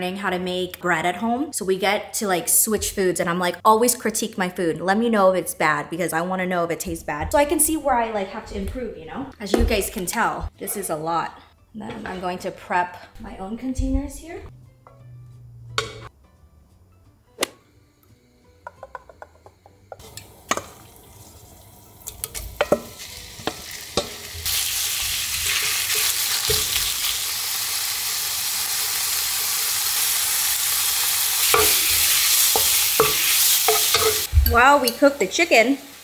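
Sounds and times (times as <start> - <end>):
chicken sizzling in frying pan: 20.0 - 36.0.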